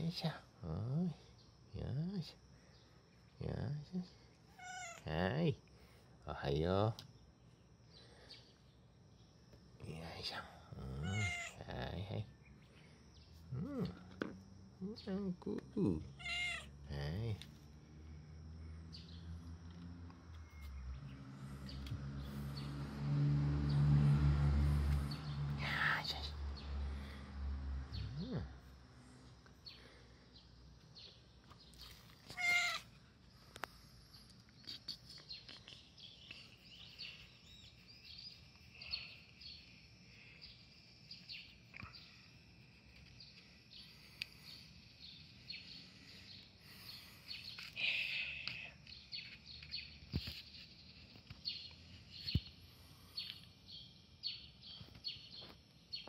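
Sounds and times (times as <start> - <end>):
small birds chirping: 0.0 - 23.9, 24.6 - 56.0
loud bird call: 11.0 - 11.6, 32.3 - 32.9.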